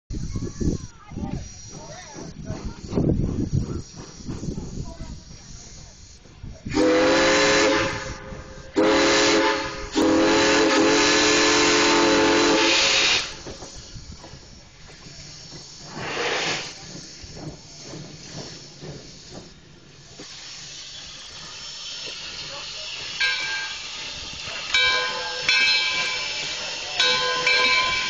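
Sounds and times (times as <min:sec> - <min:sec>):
steam hissing: 0:00.1 - 0:28.0
steam whistle blasts: 0:06.7 - 0:13.4, 0:23.2 - 0:28.0.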